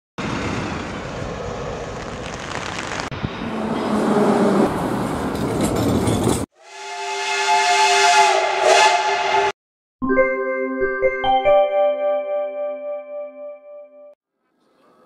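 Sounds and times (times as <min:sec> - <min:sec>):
jet engine noise: 0:00.2 - 0:04.0
steam whistle: 0:06.6 - 0:09.6
chiming music jingle: 0:10.0 - 0:14.2.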